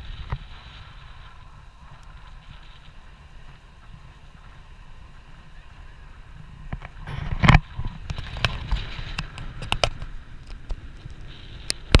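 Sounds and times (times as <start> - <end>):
wind buffeting microphone: 0.0 - 12.0
sharp clicks and knocks: 6.7 - 12.0.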